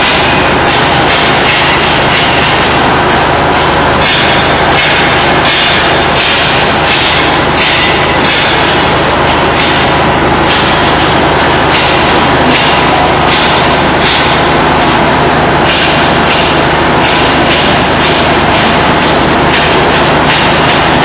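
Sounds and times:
heavy machinery drone: 0.0s - 21.0s.

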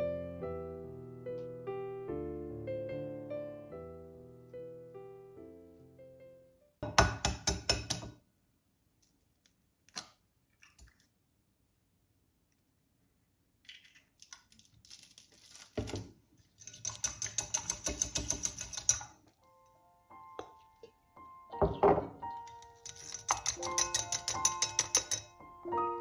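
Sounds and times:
utensil clicking against glass bowl: 16.7s - 19.1s, 22.8s - 25.3s.

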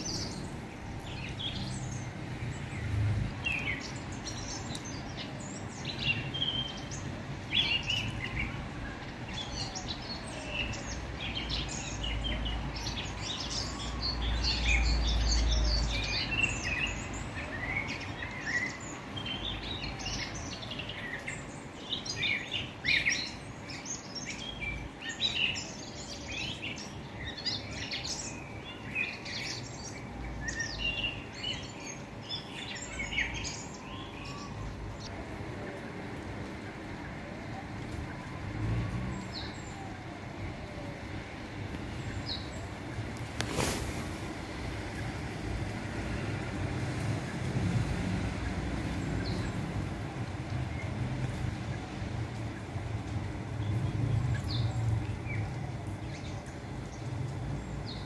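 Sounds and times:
small birds chirping: 0.0s - 35.2s, 36.5s - 58.0s.

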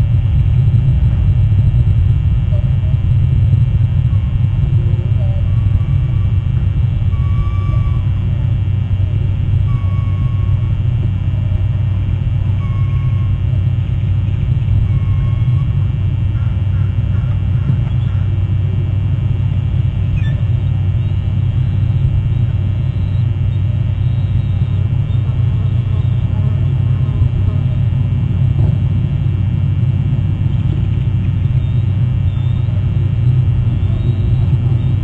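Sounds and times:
steady low rumble: 0.0s - 35.0s.

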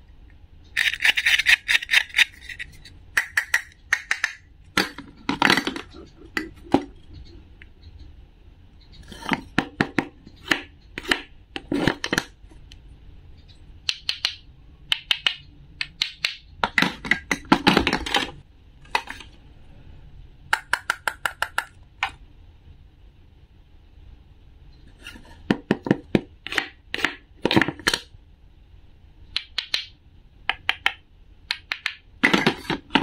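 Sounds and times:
plastic toy pieces clicking: 0.8s - 5.0s.

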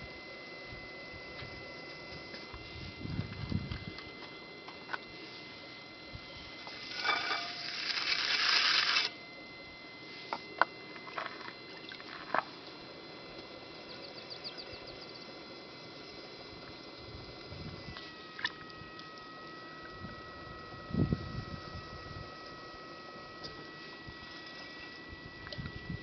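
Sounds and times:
potter's wheel whine: 0.0s - 26.0s.

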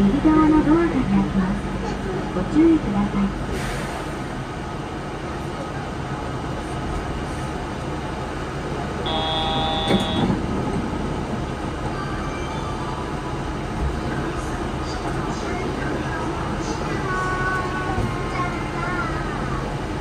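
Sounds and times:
brief electronic tone: 9.1s - 10.3s.

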